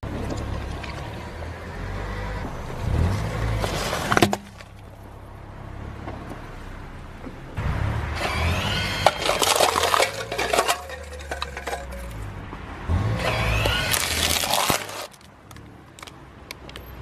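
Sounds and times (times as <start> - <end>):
plastic cups cracking and crunching: 8.2 - 12.2, 13.6 - 16.8.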